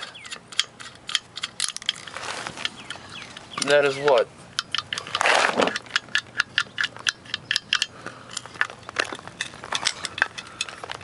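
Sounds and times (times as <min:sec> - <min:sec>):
rustle: 0:00.0 - 0:07.1
metal engine parts clicking: 0:00.0 - 0:11.0.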